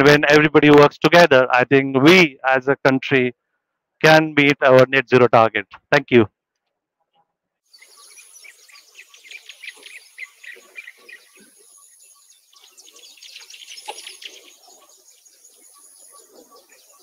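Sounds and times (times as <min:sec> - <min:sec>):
insect trill: 0:07.7 - 0:16.2
small birds chirping: 0:07.7 - 0:17.0.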